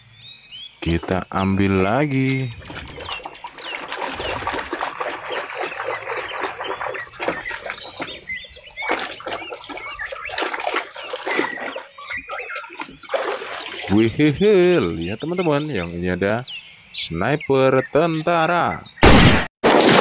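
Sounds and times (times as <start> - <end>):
birds chirping: 0.0 - 19.3
muddy water splashing: 0.8 - 16.4.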